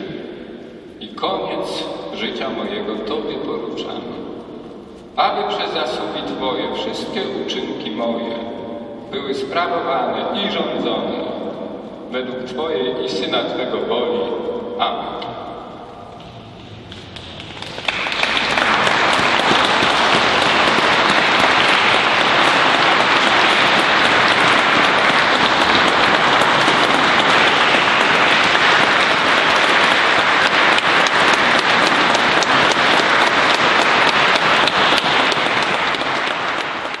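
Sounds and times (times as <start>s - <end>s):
congregation applauding: 16.1s - 37.0s.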